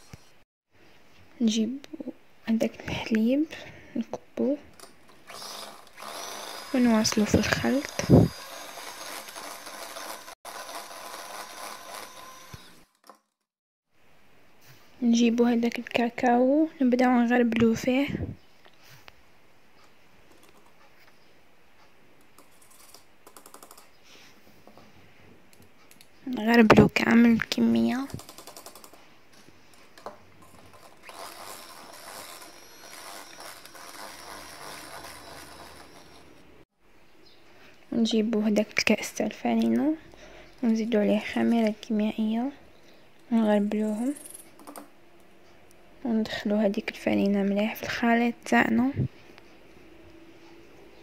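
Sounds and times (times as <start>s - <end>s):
electric hand mixer whirring: 5.2s - 13.2s, 30.7s - 36.5s.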